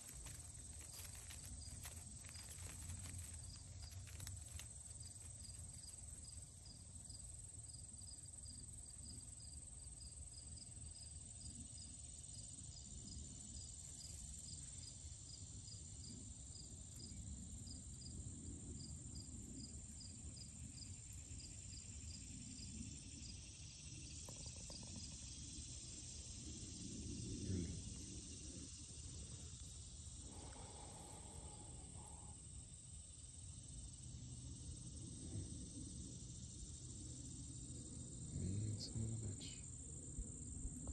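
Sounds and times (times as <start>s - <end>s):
high insect trill: 0.0s - 40.9s
insect chirping: 0.0s - 40.9s.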